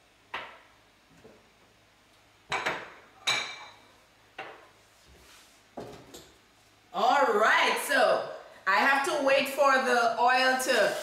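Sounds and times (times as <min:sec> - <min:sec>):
dishes clinking on countertop: 0:02.5 - 0:03.8.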